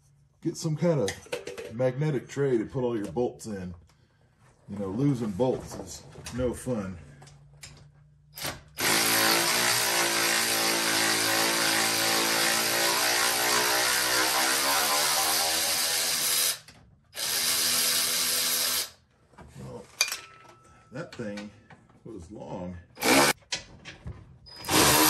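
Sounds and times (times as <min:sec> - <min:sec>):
impact wrench motor whirring: 0:08.4 - 0:19.0, 0:23.0 - 0:23.4, 0:24.6 - 0:25.0.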